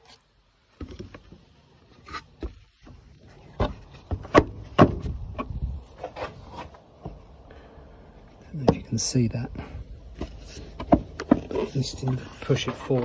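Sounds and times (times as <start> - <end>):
sharp plastic knocks: 3.6 - 5.6.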